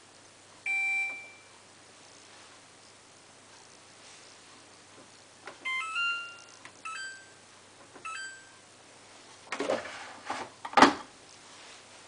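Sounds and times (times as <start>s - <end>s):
washing machine electronic chimes: 0.6s - 1.5s, 5.6s - 7.4s, 8.0s - 8.6s.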